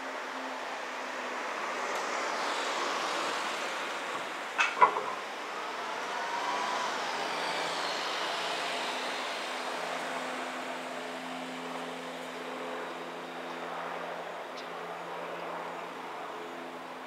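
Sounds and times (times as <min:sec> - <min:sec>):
engine drone: 0:00.0 - 0:17.0
engine hiss with falling whine: 0:01.8 - 0:12.3.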